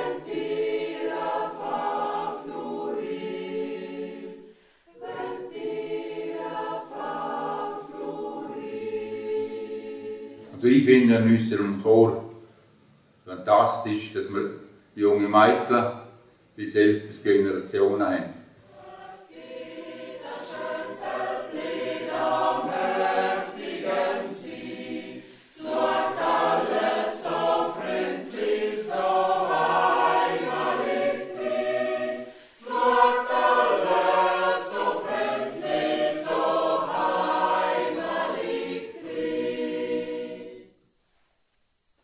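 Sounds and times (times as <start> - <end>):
mixed choir singing: 0.0 - 11.0, 18.6 - 41.0.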